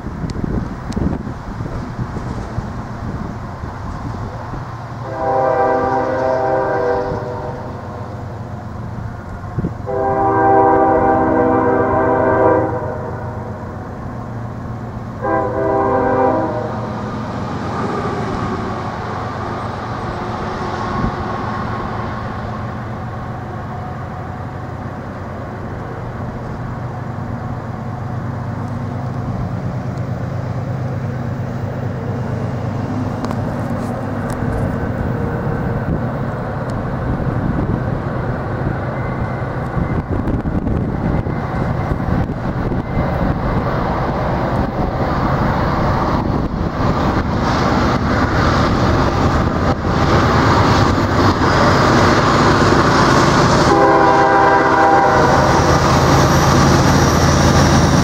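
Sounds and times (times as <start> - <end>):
train rumble: 0.0 - 58.0
train air horn blasts: 5.0 - 8.0, 9.8 - 13.6, 15.2 - 17.0, 53.5 - 55.8.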